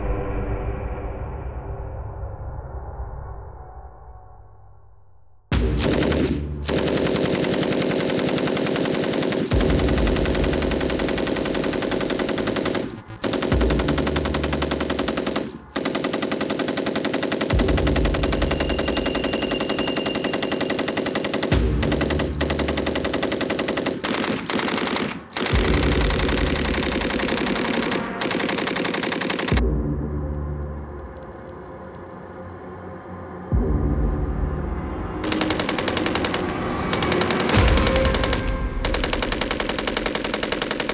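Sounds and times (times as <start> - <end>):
machine gun firing bursts: 5.7 - 29.6, 35.2 - 40.9.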